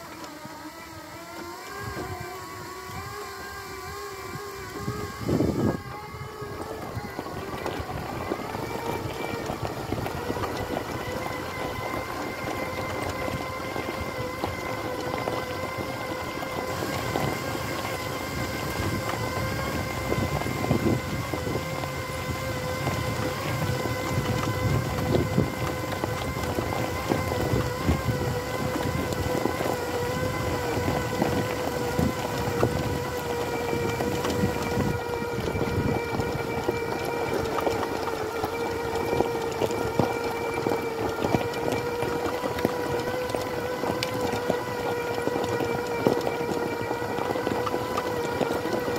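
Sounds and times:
electric motor whine: 0:00.0 - 0:48.9
tyres crunching on gravel: 0:01.0 - 0:48.9.

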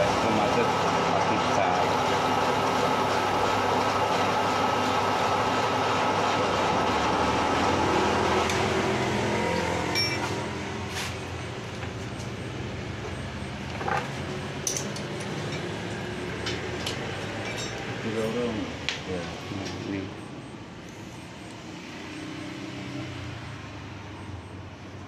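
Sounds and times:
metal lathe humming: 0:00.0 - 0:10.8.

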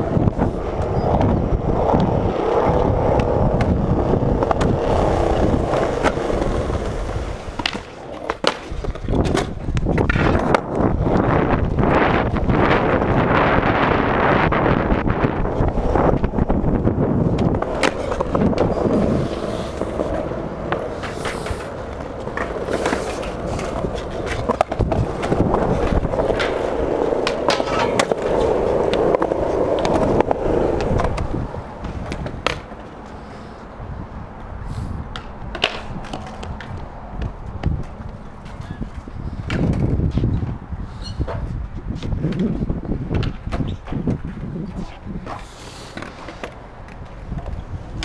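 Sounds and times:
skateboard clacks: 0:00.0 - 0:33.3, 0:34.4 - 0:40.6, 0:41.2 - 0:48.0
skateboard wheels rolling on concrete: 0:00.0 - 0:48.0.

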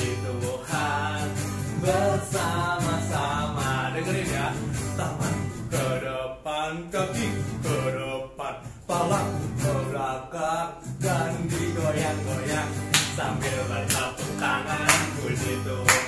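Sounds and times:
children's song singing: 0:00.0 - 0:16.0
backing track with steady beat: 0:11.0 - 0:16.0.

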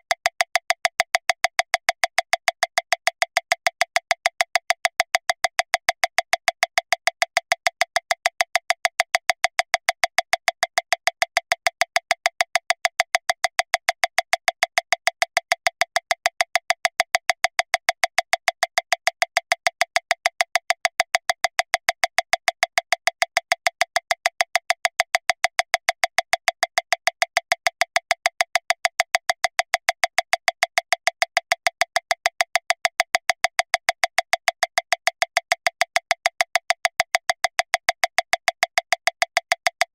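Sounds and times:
fast metronome clicking: 0:26.8 - 0:39.9.

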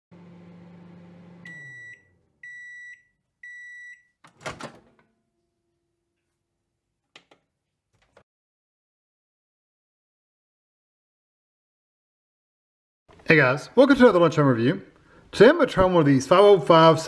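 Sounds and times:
microwave oven hum: 0:00.1 - 0:06.2.

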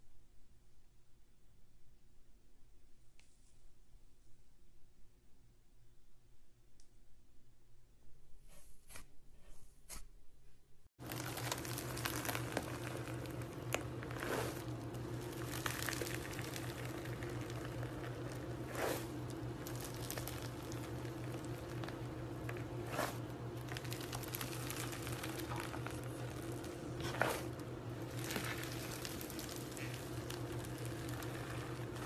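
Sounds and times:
crunchy slime crackling: 0:11.0 - 0:32.0.

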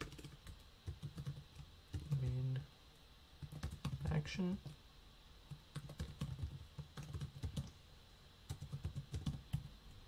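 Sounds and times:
computer keyboard typing: 0:00.0 - 0:02.5, 0:03.4 - 0:04.8, 0:05.5 - 0:07.8, 0:08.5 - 0:09.8.

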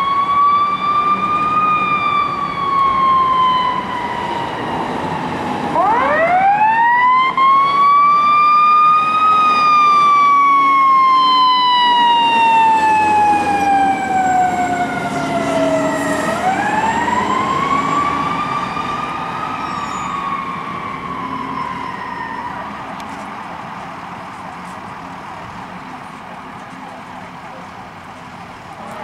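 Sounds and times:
fire engine siren wailing: 0:00.0 - 0:23.2, 0:28.5 - 0:29.0.

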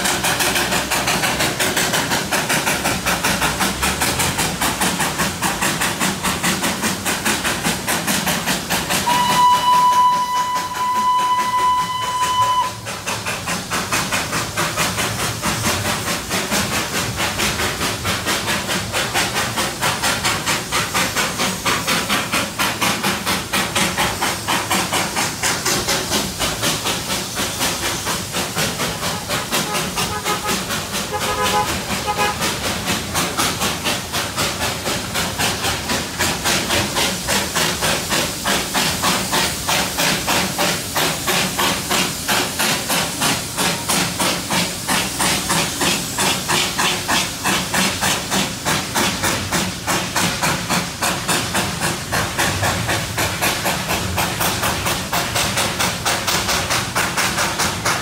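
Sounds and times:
steam hiss: 0:00.0 - 0:58.0
steam locomotive exhaust beats: 0:00.0 - 0:58.0
steam whistle blast: 0:09.0 - 0:13.0, 0:29.1 - 0:32.4.

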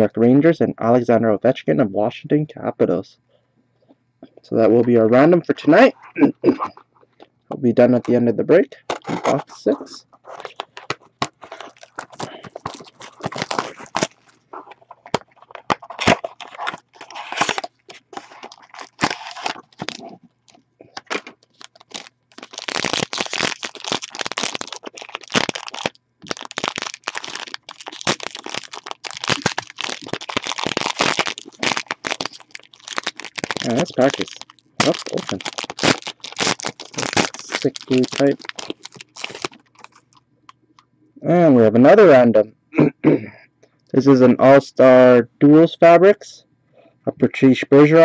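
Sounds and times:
packaging crinkling: 0:08.9 - 0:40.2.

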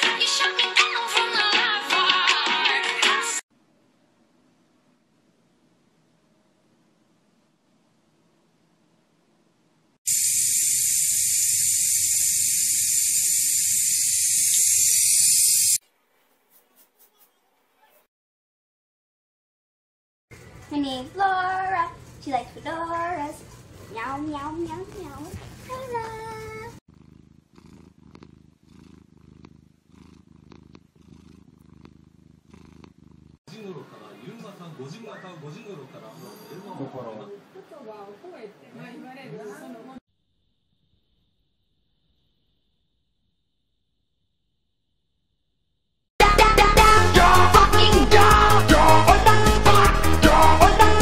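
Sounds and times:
cat purring: 0:22.9 - 0:33.5.

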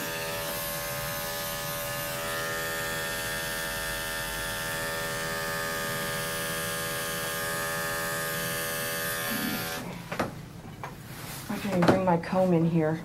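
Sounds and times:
electric clippers humming: 0:00.0 - 0:10.0.

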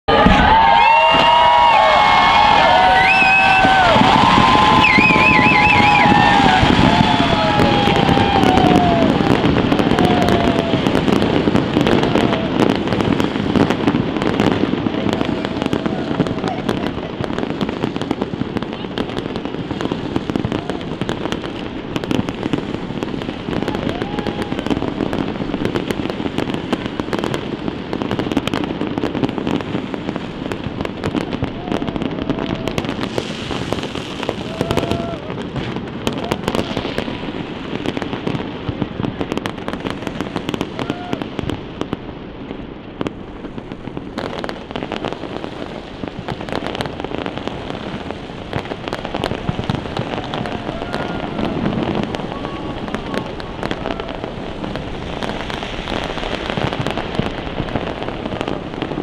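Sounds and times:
fireworks crackling and banging: 0:00.0 - 0:59.0
crowd voices: 0:00.1 - 0:25.6, 0:46.6 - 0:59.0.

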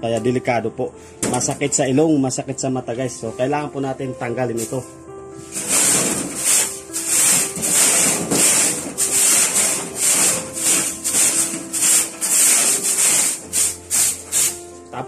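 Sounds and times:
stick broom sweeping: 0:04.5 - 0:14.9.

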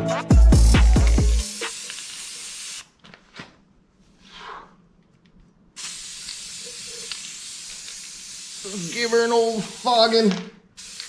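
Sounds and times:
spray-paint can hissing: 0:00.8 - 0:02.9, 0:05.8 - 0:11.0.

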